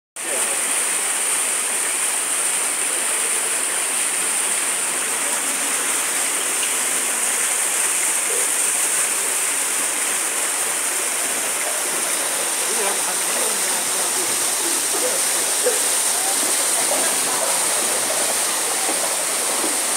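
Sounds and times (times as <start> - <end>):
floodwater rushing down street: 0.2 - 19.9.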